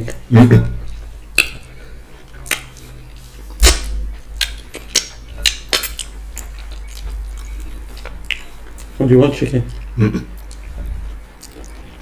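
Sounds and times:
wet chewing and smacking: 0:00.8 - 0:12.0.

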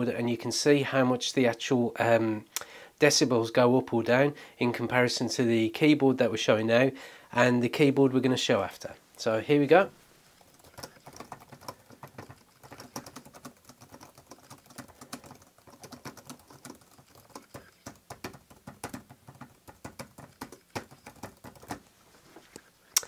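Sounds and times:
fast keyboard typing: 0:10.4 - 0:21.8.

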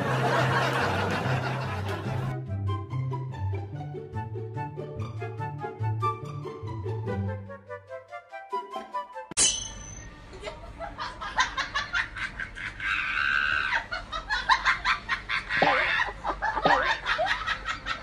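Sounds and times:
people laughing: 0:00.0 - 0:02.3, 0:10.3 - 0:18.0.

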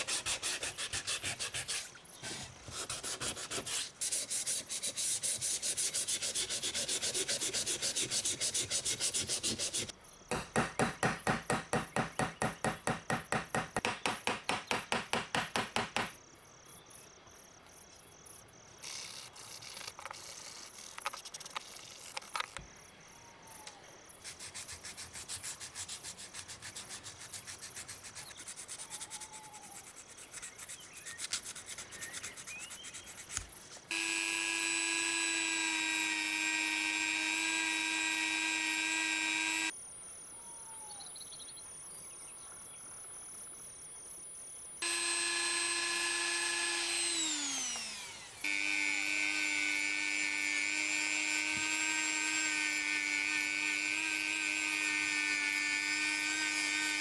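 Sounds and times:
rotary tool whine: 0:18.8 - 0:22.6, 0:33.9 - 0:39.7, 0:44.8 - 0:57.0.

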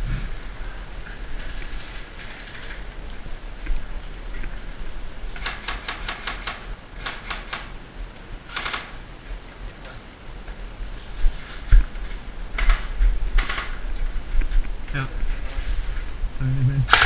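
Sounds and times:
airsoft rifle shots: 0:05.4 - 0:07.8, 0:08.5 - 0:09.1, 0:12.6 - 0:13.8.

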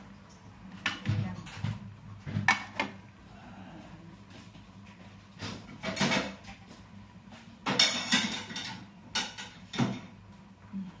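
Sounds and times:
dishes clinking and knocking: 0:00.7 - 0:03.0, 0:05.3 - 0:10.3.

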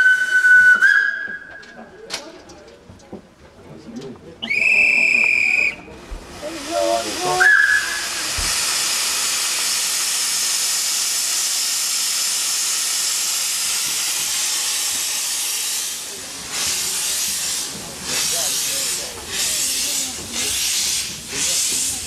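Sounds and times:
steam locomotive hissing steam: 0:00.0 - 0:01.6, 0:04.5 - 0:22.0.

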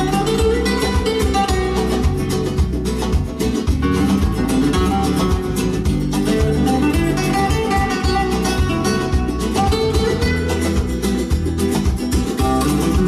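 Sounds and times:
guitar music with strong bass: 0:00.0 - 0:13.0.

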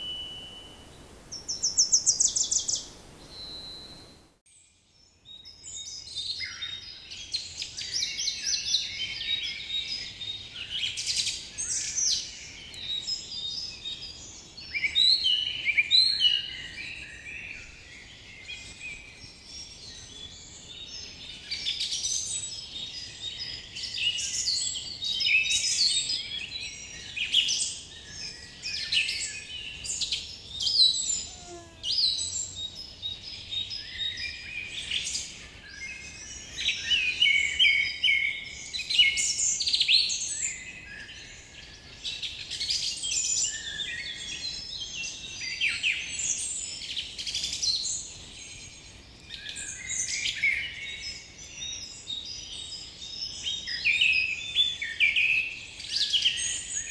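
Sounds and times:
birds chirping: 0:00.0 - 0:04.4.

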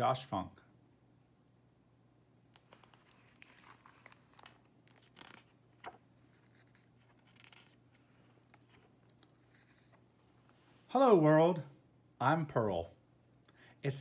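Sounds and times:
book pages turning: 0:02.5 - 0:10.9.

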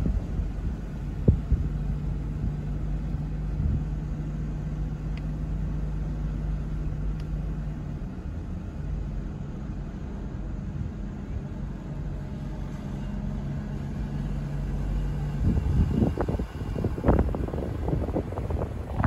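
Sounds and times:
car engine hum: 0:00.0 - 0:19.0.

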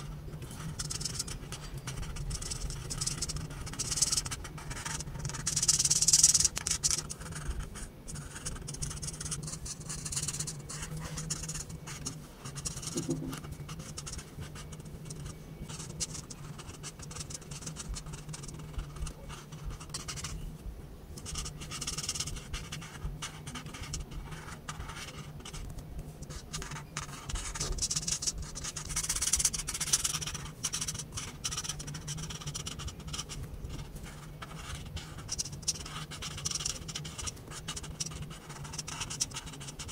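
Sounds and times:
marker scratching on paper: 0:00.0 - 0:20.4, 0:21.2 - 0:39.9.

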